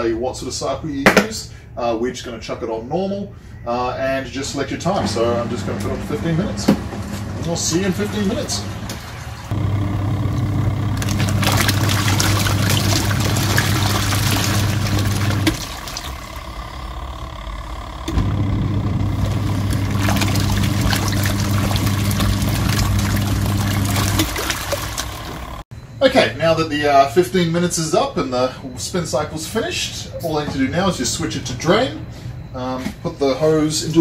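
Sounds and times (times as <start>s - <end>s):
washing machine motor humming: 3.7s - 26.6s
water and clothes sloshing: 4.9s - 9.6s, 10.8s - 16.5s, 19.1s - 25.6s.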